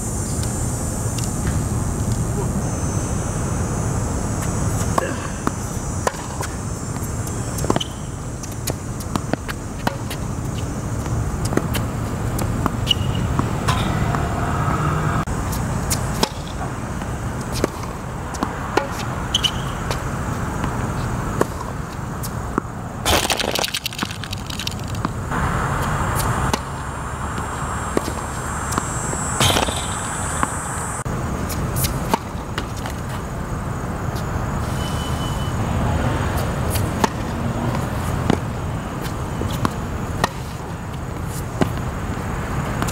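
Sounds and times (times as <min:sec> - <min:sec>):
tennis ball hits and bounces: 0:04.8 - 0:14.9, 0:15.9 - 0:25.3, 0:26.2 - 0:30.6, 0:31.5 - 0:33.3, 0:36.4 - 0:41.9.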